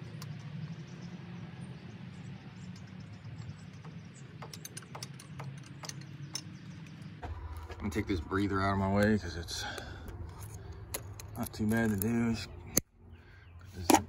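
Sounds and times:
steady low hum: 0.0 - 14.0
tools and metal fittings clinking: 2.6 - 7.2, 10.0 - 12.8.

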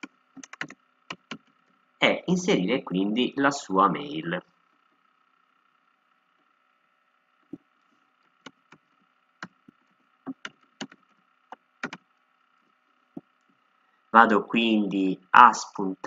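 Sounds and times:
faint steady hum: 0.0 - 16.0
keyboard key clicks: 10.3 - 11.0, 11.8 - 12.0.

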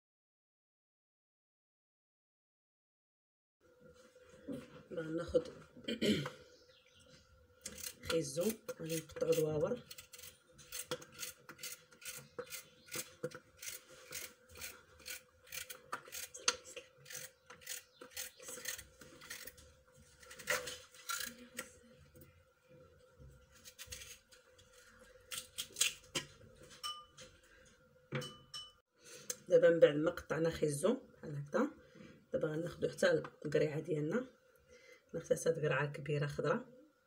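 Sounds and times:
knife cutting carrot: 23.6 - 24.2.

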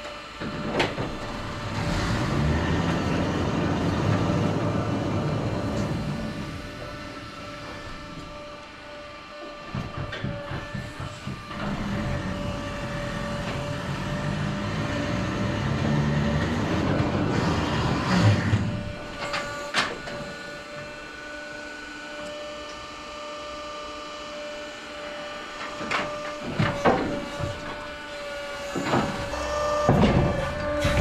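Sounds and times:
crane trolley rumbling clatter: 0.0 - 21.0, 25.6 - 31.0
crane motor hum: 0.0 - 31.0
knocks: 9.6 - 12.0
loud metal clank: 28.9 - 31.0.

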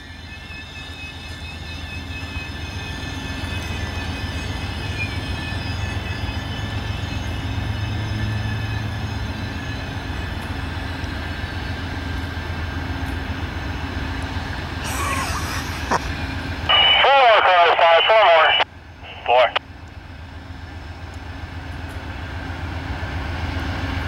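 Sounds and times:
high-pitched train squeal: 0.0 - 13.0
locomotive engines rumbling: 0.0 - 24.0.

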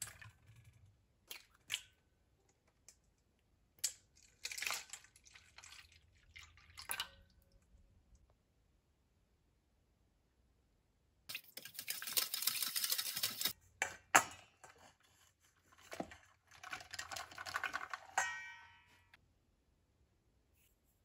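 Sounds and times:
spoon scraping steel bowl: 11.3 - 18.7
metal bowl ringing: 18.2 - 19.2.

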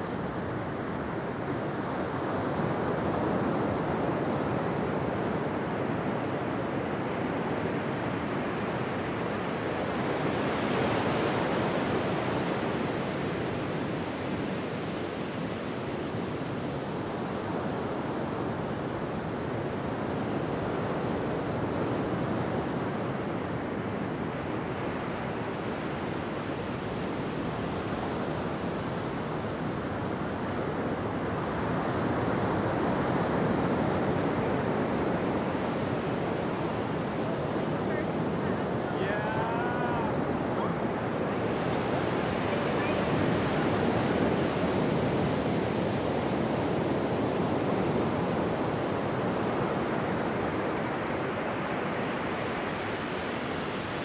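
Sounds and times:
wind blowing over microphone: 26.2 - 53.1.

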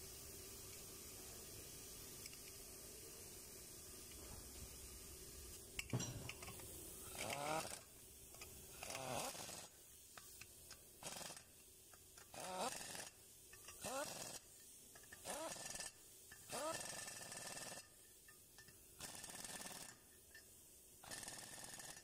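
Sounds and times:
pneumatic wrench whining: 5.8 - 9.8, 11.0 - 11.5, 12.2 - 17.9, 19.0 - 20.0, 21.0 - 22.0.

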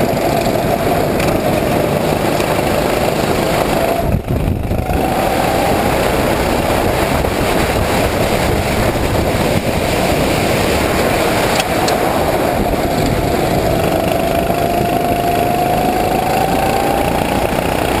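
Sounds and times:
kart engine running hard: 0.0 - 18.0.

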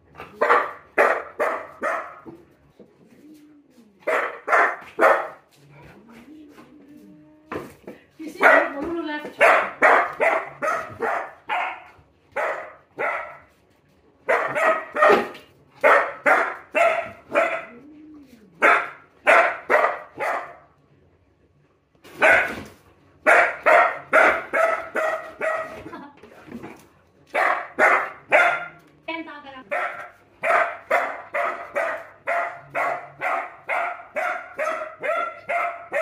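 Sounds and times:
puppy barking: 0.2 - 2.4, 4.0 - 5.5, 8.4 - 13.5, 14.2 - 17.8, 18.6 - 20.7, 22.1 - 25.9, 27.3 - 28.8, 29.7 - 36.0.

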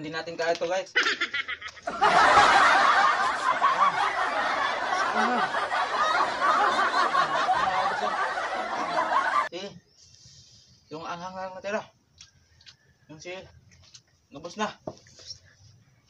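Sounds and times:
laugh track: 0.9 - 9.5.

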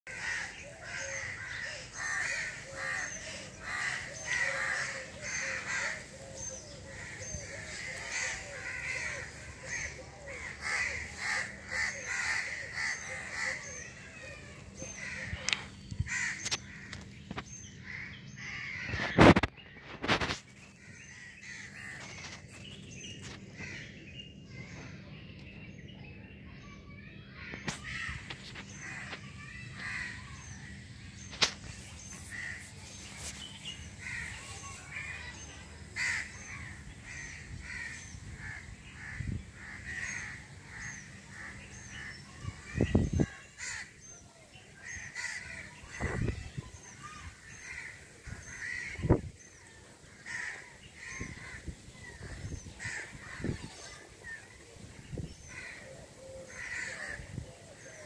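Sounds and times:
birds calling and chirping: 0.1 - 58.0.

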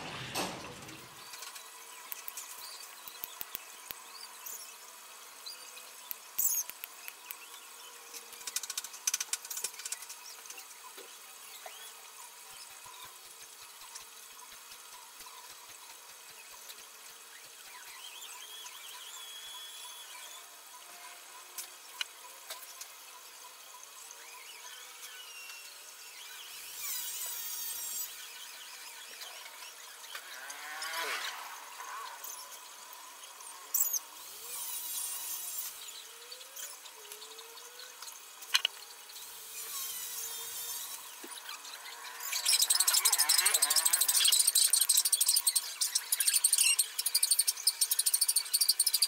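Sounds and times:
short high squeaks: 39.6 - 49.0.

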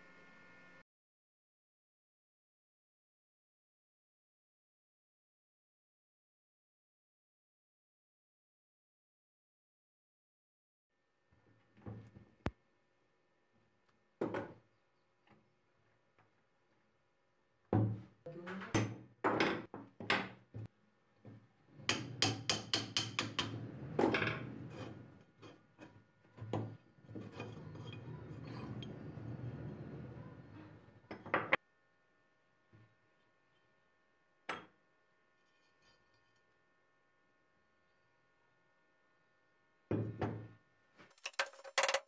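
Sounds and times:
metal knocking on wood: 21.9 - 24.5.

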